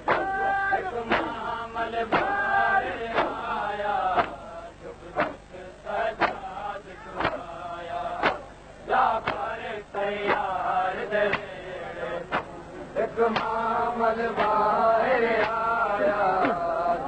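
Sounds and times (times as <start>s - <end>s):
percussive beat: 0.0s - 2.4s, 3.0s - 3.5s, 4.1s - 4.5s, 5.1s - 5.5s, 6.1s - 8.5s, 9.1s - 9.6s, 10.2s - 11.6s, 12.2s - 12.6s, 13.3s - 13.6s, 14.3s - 14.7s, 15.3s - 15.6s
man chanting a lament: 0.0s - 17.0s.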